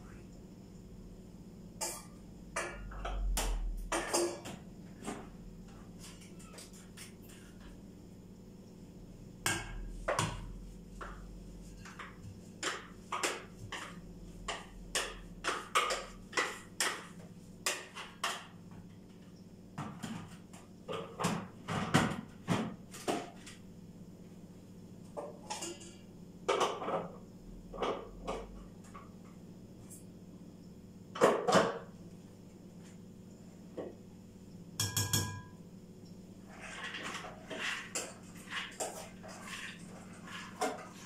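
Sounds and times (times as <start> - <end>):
metal bowl and plastic jar knocks: 34.8 - 35.5.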